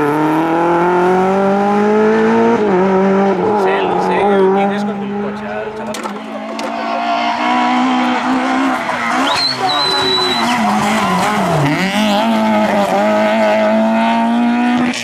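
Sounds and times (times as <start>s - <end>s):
high whistle-like tone: 9.2s - 10.7s.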